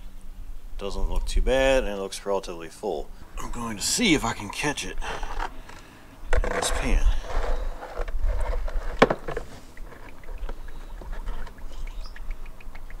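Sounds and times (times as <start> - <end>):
small ticks: 9.6 - 13.0.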